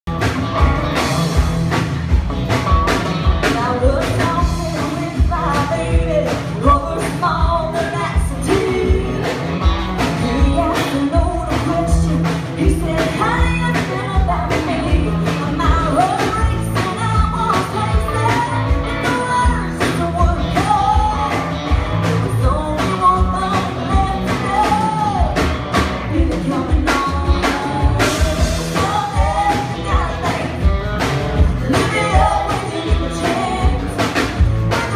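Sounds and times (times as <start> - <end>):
live band playing: 0.1 - 34.9
women singing: 3.5 - 9.4, 10.2 - 25.5, 26.1 - 30.7, 31.4 - 34.9.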